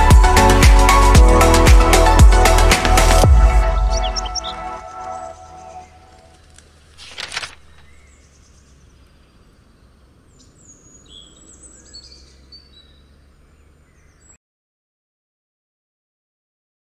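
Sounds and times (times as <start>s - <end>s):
faint bird chirps: 3.9s - 14.4s.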